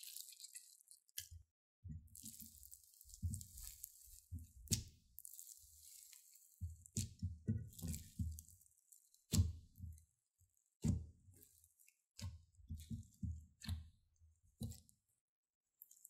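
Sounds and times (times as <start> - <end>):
slime squelching: 2.1 - 10.1.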